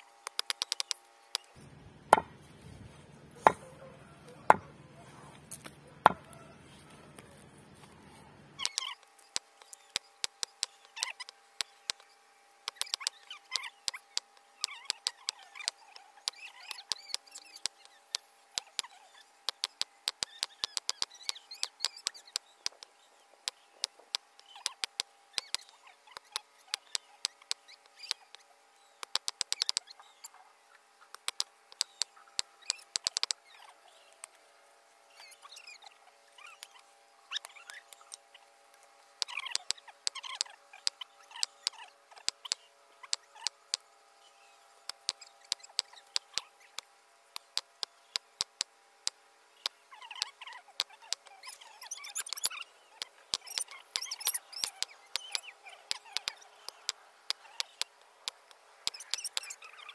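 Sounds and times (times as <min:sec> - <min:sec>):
knife chopping on wooden block: 0:02.1 - 0:02.4, 0:03.4 - 0:03.6.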